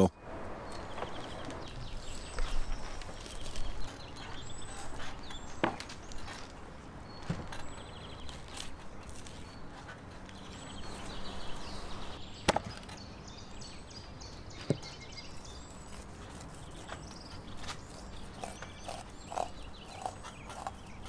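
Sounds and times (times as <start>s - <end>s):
knife scraping through fish: 15.4s - 21.0s.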